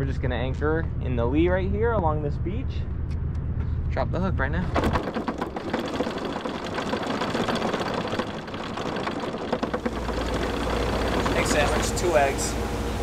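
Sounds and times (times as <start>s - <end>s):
anchor chain rattling: 4.7s - 12.5s.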